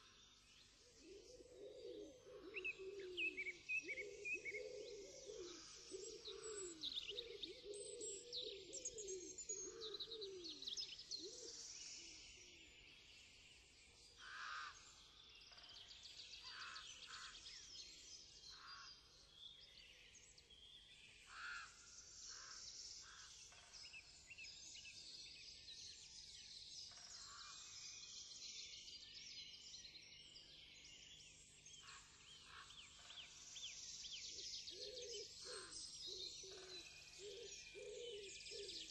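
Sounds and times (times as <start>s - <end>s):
small birds chirping: 0.0s - 1.5s, 2.1s - 38.9s
low cooing calls: 1.0s - 10.6s, 37.2s - 38.9s.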